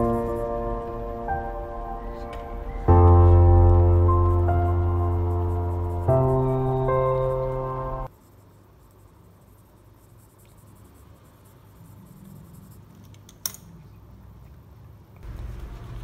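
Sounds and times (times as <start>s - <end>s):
pencil scratching on paper: 0.0s - 1.2s, 2.0s - 13.1s
soft background music: 0.0s - 8.1s.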